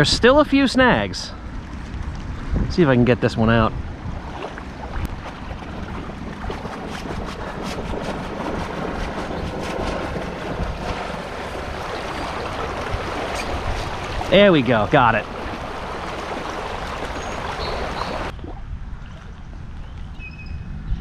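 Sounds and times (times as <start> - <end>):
wind on microphone: 1.4 - 21.0
river water rushing over rocks: 5.6 - 18.3.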